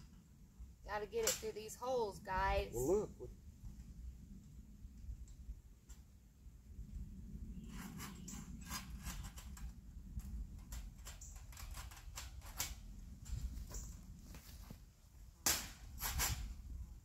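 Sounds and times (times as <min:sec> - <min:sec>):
wire fencing clicking and rattling: 0:07.7 - 0:14.0.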